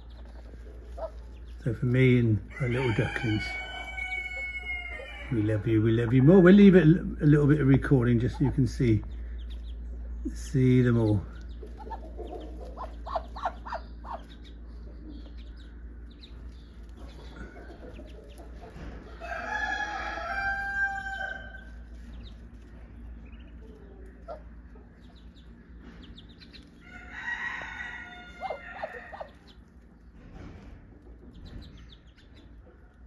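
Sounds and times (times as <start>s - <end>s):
ducklings peeping: 0.0s - 33.0s.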